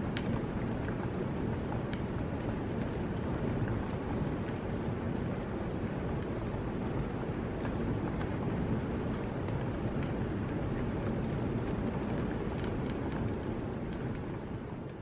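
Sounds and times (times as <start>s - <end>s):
heavy rain pouring: 0.0s - 15.0s
raindrops ticking nearby: 0.0s - 15.0s.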